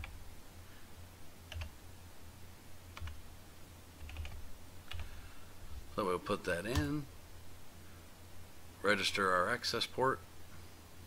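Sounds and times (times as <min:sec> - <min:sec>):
low steady hum: 0:00.0 - 0:11.0
computer keyboard keystrokes: 0:01.5 - 0:01.7, 0:03.0 - 0:03.2, 0:04.0 - 0:05.1, 0:06.7 - 0:06.9.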